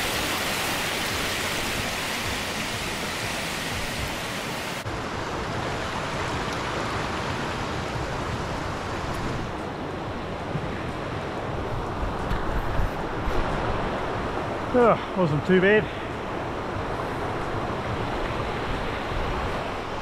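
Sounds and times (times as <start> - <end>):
creek running over stones: 0.0 - 4.9.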